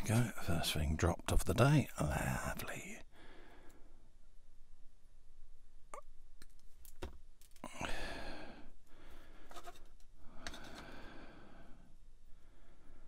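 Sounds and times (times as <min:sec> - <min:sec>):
small plastic parts handled: 0:06.4 - 0:07.7, 0:09.5 - 0:10.9
person exhaling: 0:07.6 - 0:09.4.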